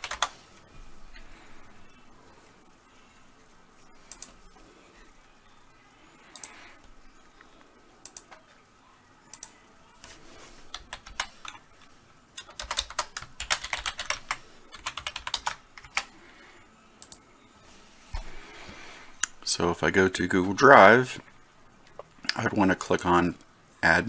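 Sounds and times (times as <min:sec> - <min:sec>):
typing on computer keyboard: 0:00.0 - 0:00.3, 0:10.7 - 0:11.6, 0:12.4 - 0:16.1.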